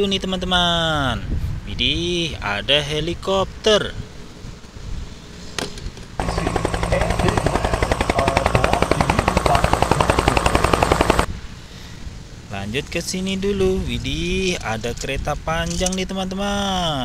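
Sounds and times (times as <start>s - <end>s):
helicopter rotor chopping: 6.2s - 11.3s.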